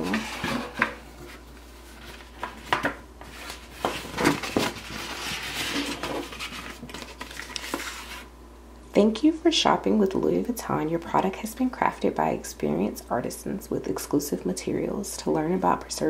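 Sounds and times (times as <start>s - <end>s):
paper rustling and sliding: 0.0s - 8.3s.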